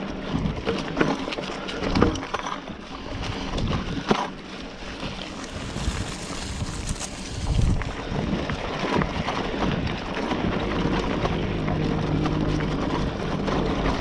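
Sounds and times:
bike clicking and rattling: 0.0s - 14.0s
bike tyres on dirt trail: 0.0s - 14.0s
wind on microphone: 3.1s - 4.2s, 5.0s - 11.6s
crunching leaves: 4.5s - 8.2s.

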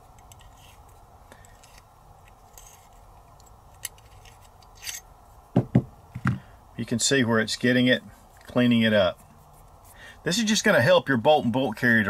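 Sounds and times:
metal tool scraping metal: 4.8s - 5.1s.

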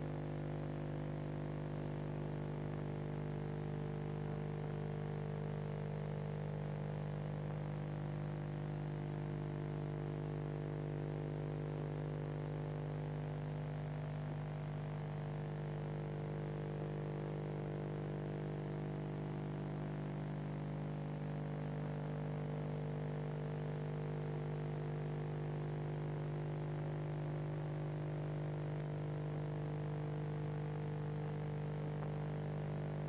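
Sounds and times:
steady low buzzy hum: 0.0s - 33.0s.

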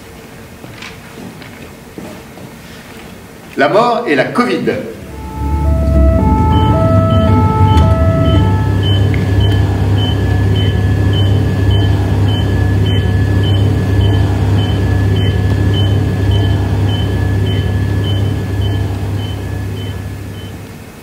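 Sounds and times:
held high tone: 5.0s - 20.6s
low drone: 5.0s - 20.7s.

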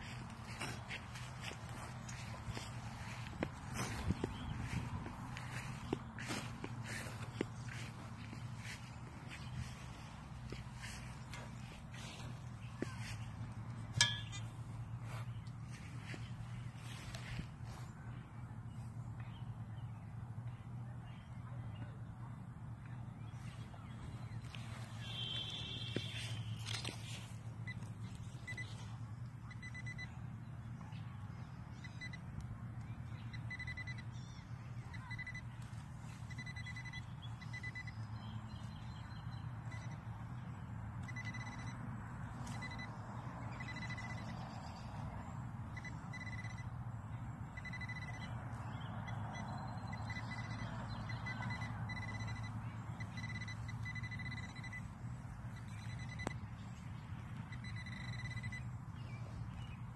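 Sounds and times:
low steady hum: 0.0s - 59.9s
high-pitched pinpointer beeps: 13.9s - 14.6s, 27.6s - 30.2s, 31.7s - 32.3s, 33.2s - 40.0s, 41.0s - 46.8s, 47.4s - 59.4s.

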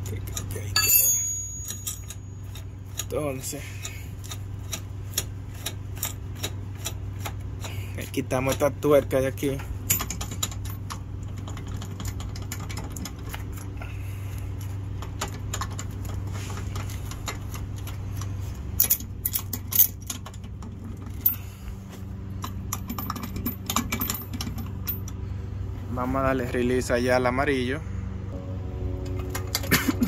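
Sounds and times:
metallic clicks and rattles: 0.0s - 7.8s, 8.4s - 13.7s, 14.9s - 21.4s, 22.4s - 25.2s
steady low hum: 0.0s - 30.0s
sharp metal clinks: 0.7s - 2.4s.

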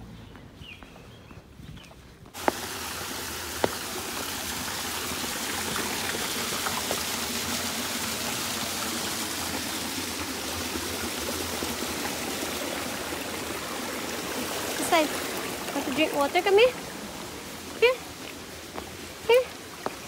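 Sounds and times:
stream running over stones: 2.4s - 20.0s.

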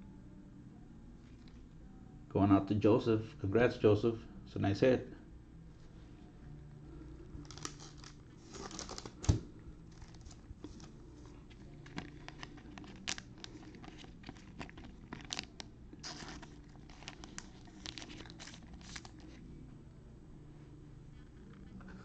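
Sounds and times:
plastic card holder rustling: 11.8s - 19.4s.

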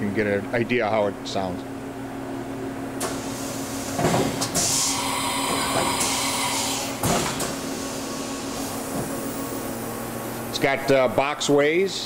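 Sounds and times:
machine hum: 0.0s - 12.0s
pneumatic hiss: 3.0s - 9.6s
machine clunk: 7.0s - 7.6s.

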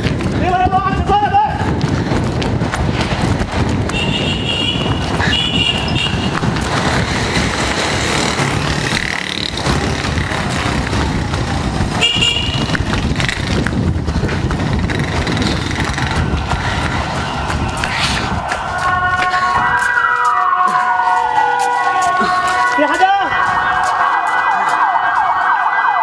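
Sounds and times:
wind and handling rumble: 0.0s - 24.1s
footfalls: 0.0s - 26.0s
vehicle horn blasts: 3.9s - 6.4s, 12.0s - 12.8s.

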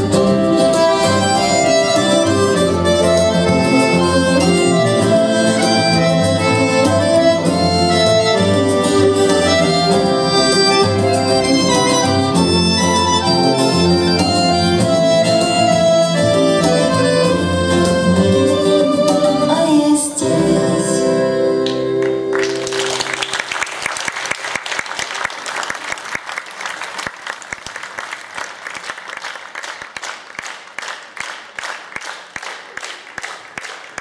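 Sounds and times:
folk-rock band playing: 0.0s - 23.4s
audience applause: 22.0s - 34.0s.

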